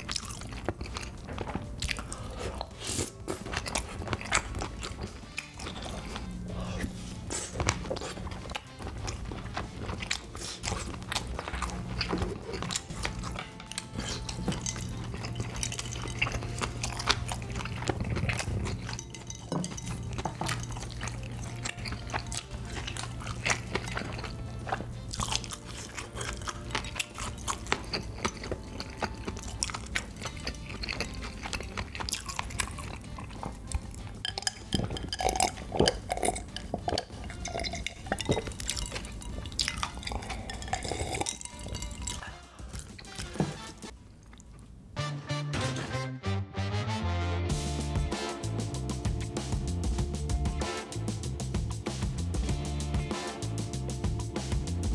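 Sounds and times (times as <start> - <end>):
person chewing food: 0.0 - 45.0
person drinking iced cola: 12.0 - 44.6.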